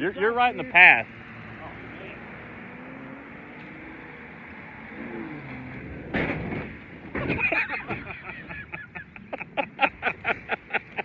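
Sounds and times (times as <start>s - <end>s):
car engine running: 0.0s - 11.0s
car landing impact: 5.7s - 8.3s
people laughing: 7.2s - 11.0s.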